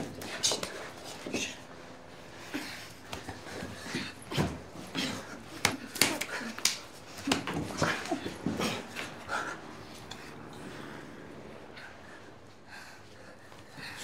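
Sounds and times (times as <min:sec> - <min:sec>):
woman breathing hard and moaning: 0:02.2 - 0:05.5, 0:07.2 - 0:14.0
man breathing hard and moaning: 0:07.6 - 0:14.0.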